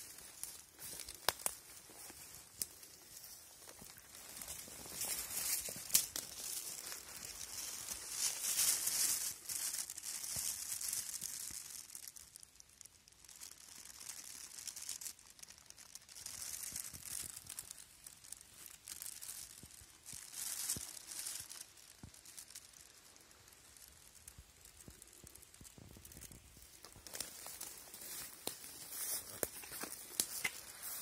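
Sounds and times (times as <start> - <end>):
dry leaves rustling: 0.0 - 31.0
faint twig snaps: 0.1 - 9.9, 24.6 - 31.0.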